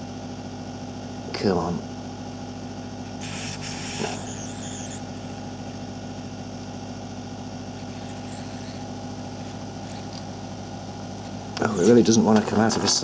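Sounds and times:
hot air gun blower hum: 0:02.4 - 0:12.1.

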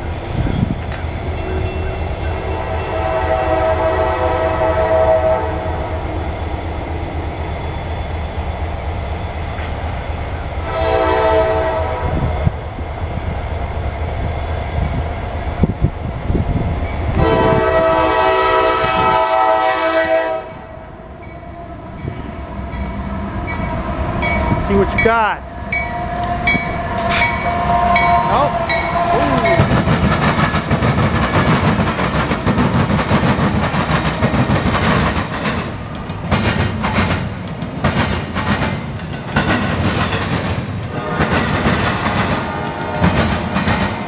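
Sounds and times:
low rumble of train: 0:00.0 - 0:44.0
locomotive air horn blasts: 0:01.4 - 0:06.0, 0:10.6 - 0:12.3, 0:17.2 - 0:20.7, 0:27.0 - 0:29.6, 0:40.9 - 0:41.4, 0:42.4 - 0:43.2.

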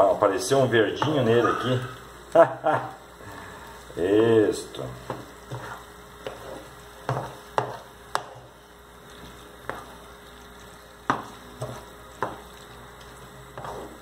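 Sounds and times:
sauce sizzling: 0:00.0 - 0:14.0
wooden spoon stirring sauce: 0:04.8 - 0:14.0.

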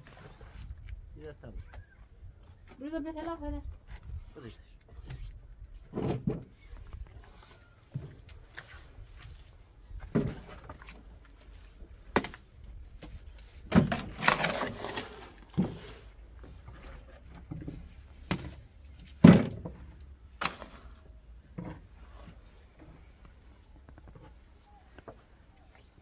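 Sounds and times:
scraping rustle: 0:14.0 - 0:19.2.

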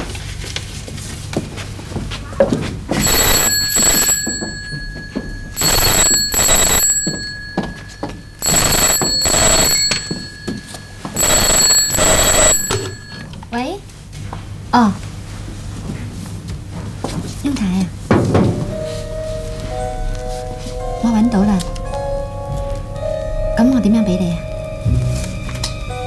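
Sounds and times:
telephone bell double rings: 0:02.9 - 0:13.3.

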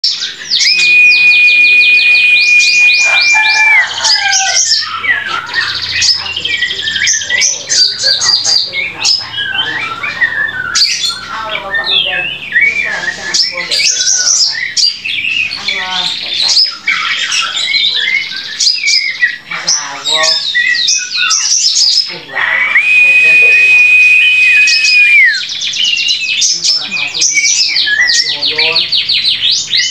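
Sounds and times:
bird singing varied whistles: 0:00.5 - 0:03.9, 0:22.6 - 0:26.0.

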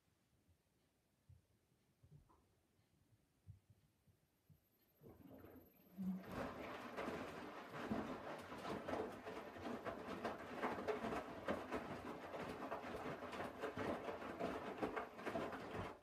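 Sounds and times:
washing machine drum tumbling laundry: 0:05.0 - 0:16.0.

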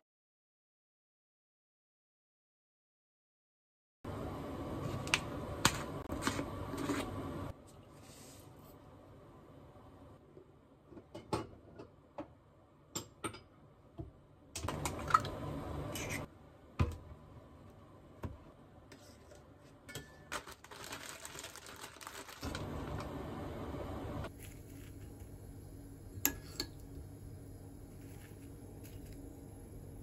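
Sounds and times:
plastic bag rustling: 0:20.3 - 0:23.1.

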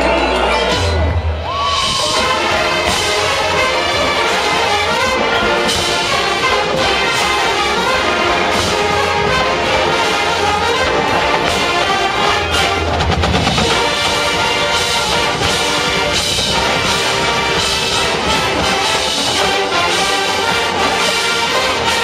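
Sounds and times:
marching band playing: 0:00.0 - 0:22.0
drum hits: 0:12.7 - 0:19.4.

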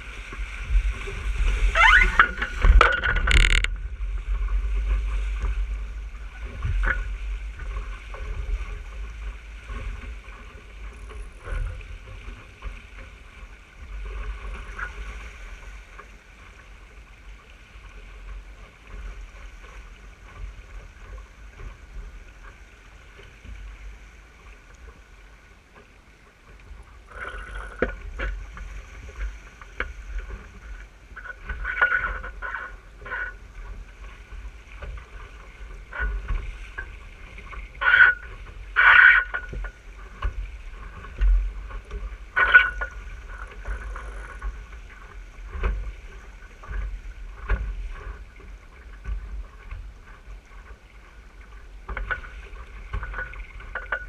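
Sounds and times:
wind buffeting the microphone: 0:00.0 - 0:15.8
water slapping against a hull: 0:00.0 - 0:54.0.

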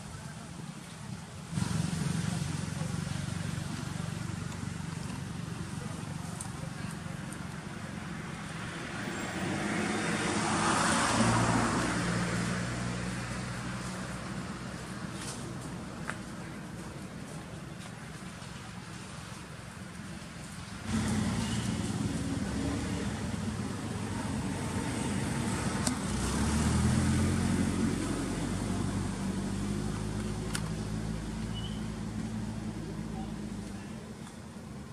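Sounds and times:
vehicle passing by: 0:01.5 - 0:15.5, 0:20.8 - 0:33.9.

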